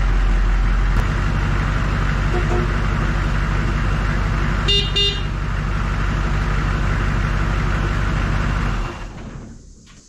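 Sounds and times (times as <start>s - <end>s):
diesel engine idling: 0.0s - 9.8s
short horn beep: 4.7s - 5.3s.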